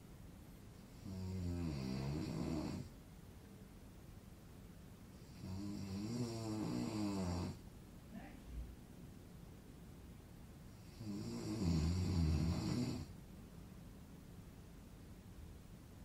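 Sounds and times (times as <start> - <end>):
man snoring: 0.9 - 2.9, 5.2 - 7.6, 10.8 - 13.1.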